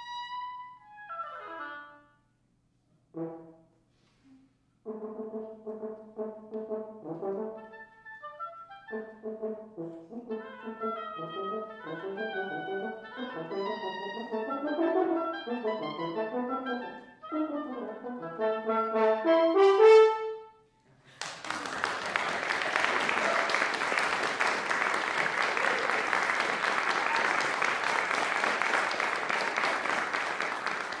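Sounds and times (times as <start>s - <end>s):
french horn and clarinet duo: 0.0s - 2.2s, 3.0s - 20.6s
audience applauding: 21.1s - 31.0s.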